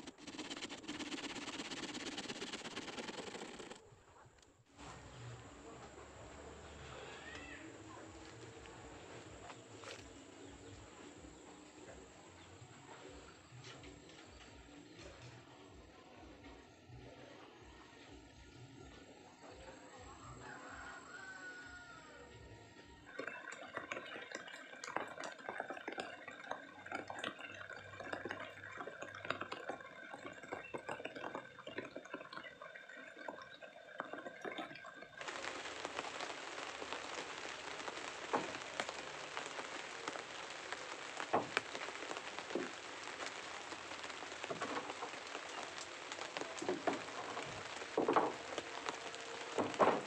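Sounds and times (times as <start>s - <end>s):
crackles and clicks: 0.0s - 3.8s, 23.0s - 50.0s
even hiss: 0.0s - 3.8s, 35.2s - 50.0s
power tools knocking on wood: 46.6s - 48.8s, 49.6s - 50.0s.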